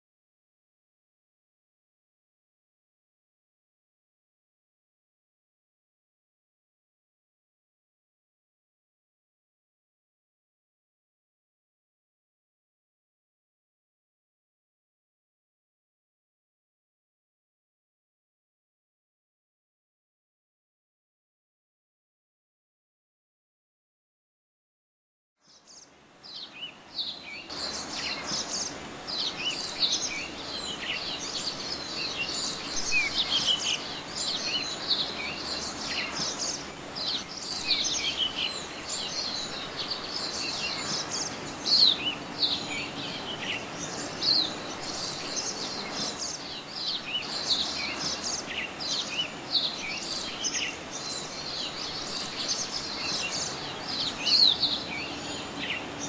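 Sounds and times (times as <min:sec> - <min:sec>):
songbirds chirping: 0:25.4 - 0:56.0
steady outdoor hiss: 0:25.4 - 0:56.0.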